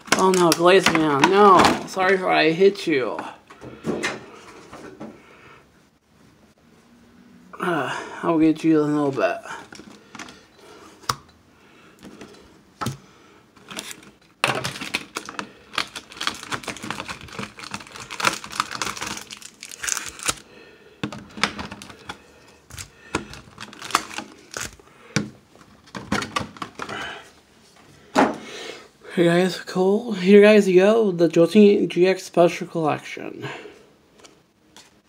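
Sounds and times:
packaging crinkling and clicking: 0.0 - 1.4, 13.6 - 20.4, 21.0 - 26.9.

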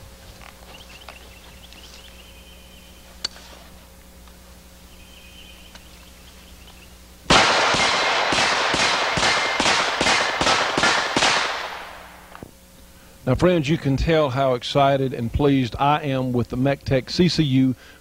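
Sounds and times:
rifle gunshots with echo: 7.3 - 12.3.

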